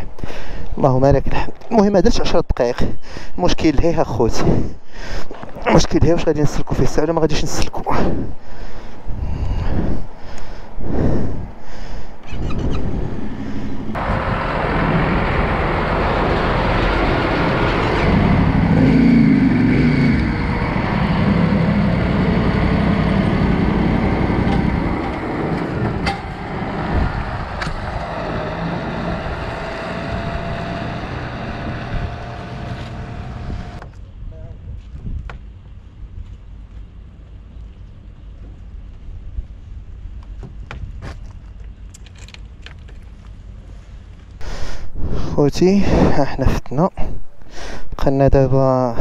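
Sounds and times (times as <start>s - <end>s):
background motor noise: 3.0s - 49.0s
lorry engine passing close: 13.6s - 33.8s.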